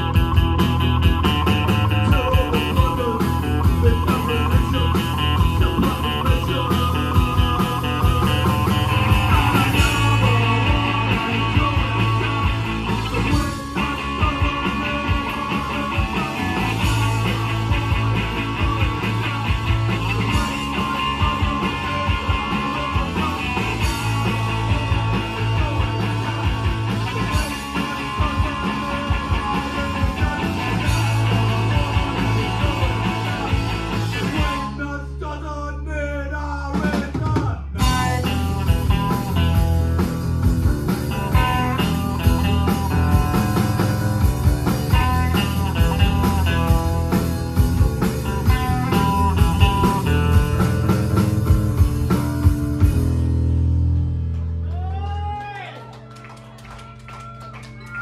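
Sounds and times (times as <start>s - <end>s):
drum kit: 0.0s - 34.8s, 36.7s - 55.6s
electric guitar: 0.0s - 35.3s, 36.7s - 58.0s
bass guitar: 0.0s - 58.0s
man singing: 1.5s - 39.6s, 48.2s - 50.6s.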